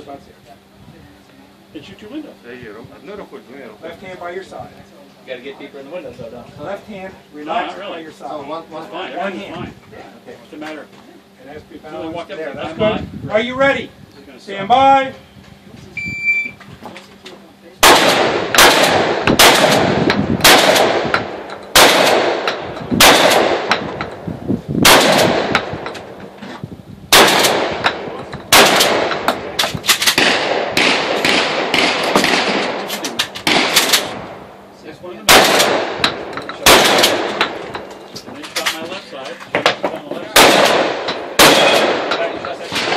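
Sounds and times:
shotgun shots ringing: 17.8 - 24.1, 24.8 - 25.9, 27.1 - 34.3, 35.2 - 37.7, 40.3 - 42.9.

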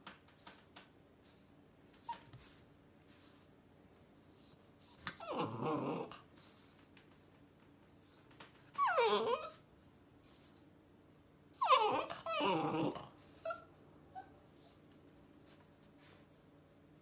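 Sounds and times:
puppy whining: 1.9 - 2.6, 4.2 - 6.7, 7.9 - 9.7, 11.4 - 15.0.

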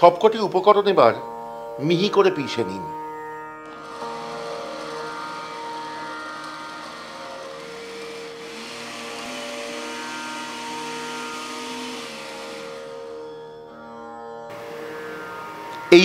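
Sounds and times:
electric mixer grinder running: 3.7 - 13.6, 14.5 - 15.9.

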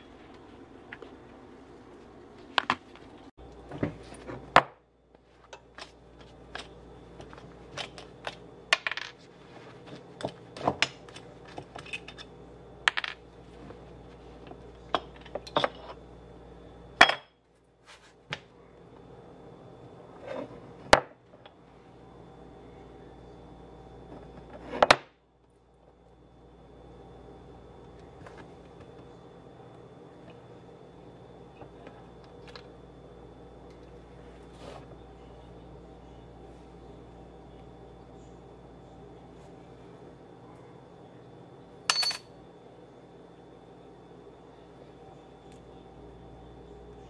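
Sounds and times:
faint steady hum: 0.0 - 47.0
metal mold parts clinking: 41.9 - 42.2.

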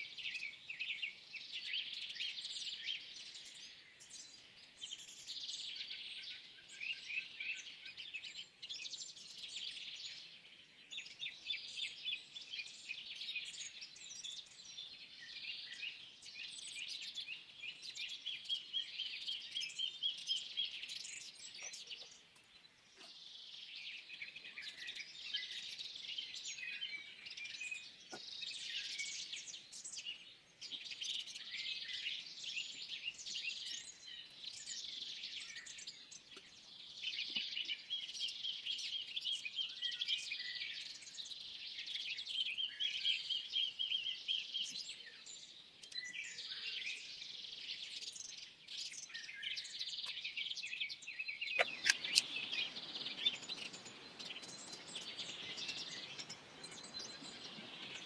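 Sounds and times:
birds chirping and singing: 0.0 - 58.0.

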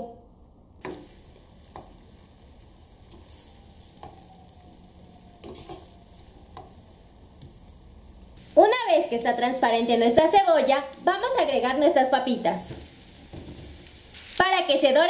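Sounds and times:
onion sizzling in a pan: 0.8 - 15.0
plastic spoon scraping a pan: 5.4 - 5.9.

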